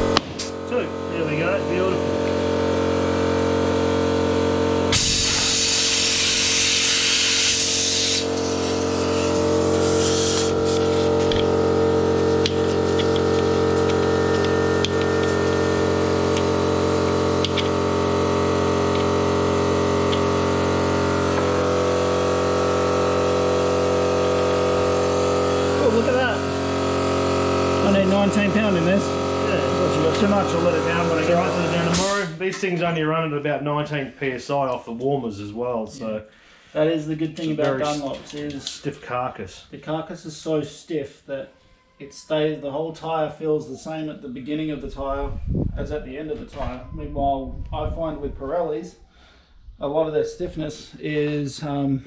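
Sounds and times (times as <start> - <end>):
air compressor motor hum: 0.0 - 32.4
hiss of rushing air: 5.0 - 11.1.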